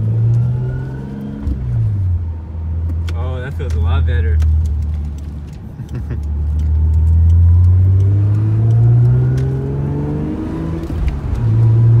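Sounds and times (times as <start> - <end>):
car engine accelerating: 4.4 - 12.0.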